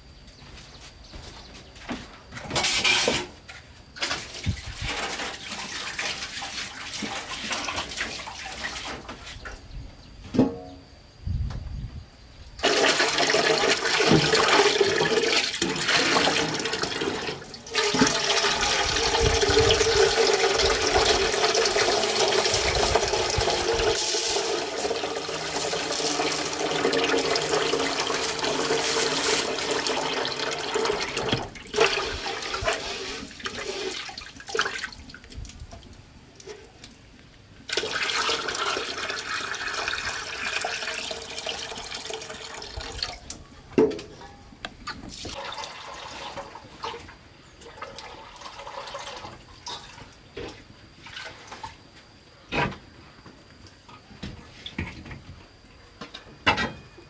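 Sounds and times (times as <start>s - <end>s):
tap water running into metal pot: 12.6s - 34.9s, 37.7s - 43.2s.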